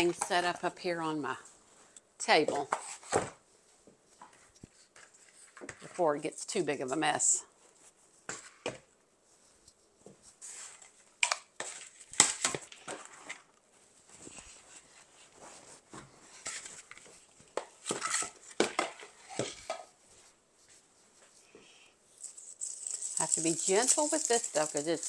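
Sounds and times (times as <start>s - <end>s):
dried branches crackling: 22.6s - 25.0s.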